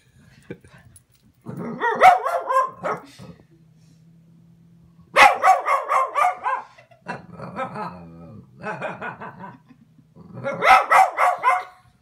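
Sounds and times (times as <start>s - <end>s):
dog barking and yowling: 1.6s - 3.2s, 5.1s - 6.8s, 10.4s - 11.8s.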